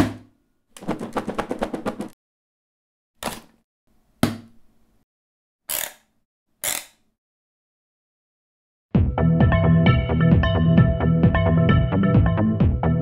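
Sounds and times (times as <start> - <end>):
knocks on plastic: 0.8 - 2.2.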